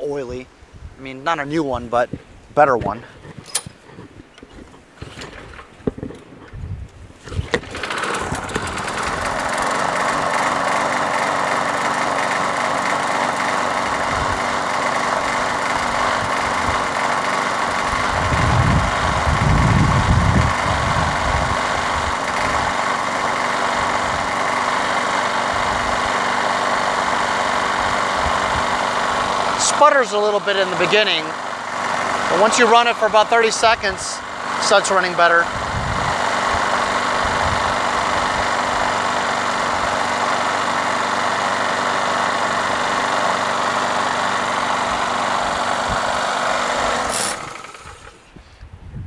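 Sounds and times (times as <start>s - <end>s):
lawn mower engine running: 3.1s - 48.4s.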